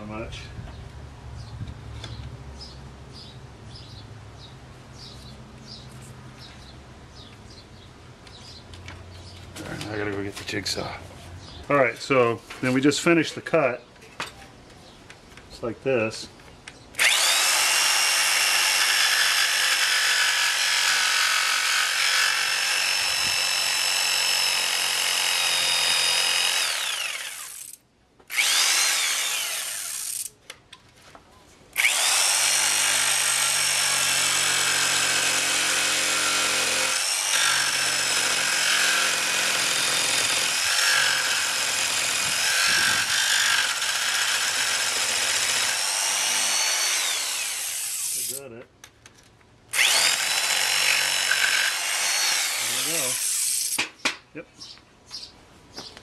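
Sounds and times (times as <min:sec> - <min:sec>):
electric jigsaw cutting wood: 0:17.0 - 0:30.3, 0:31.8 - 0:48.4, 0:49.7 - 0:53.8.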